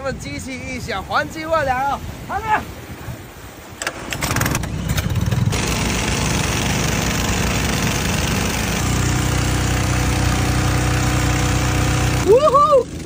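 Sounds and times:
recoil cord pull-start: 0:03.8 - 0:12.3
water pump engines running: 0:03.8 - 0:13.0
deep engine hum: 0:04.6 - 0:13.0
water spraying from hoses: 0:05.5 - 0:13.0.

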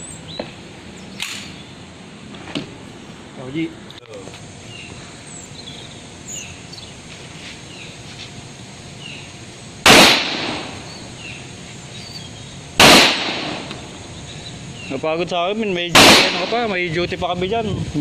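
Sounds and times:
faint bird chirps: 0:04.6 - 0:07.0, 0:10.8 - 0:12.6
pistol shots echoing: 0:09.9 - 0:10.8, 0:12.8 - 0:13.8, 0:15.9 - 0:16.7.

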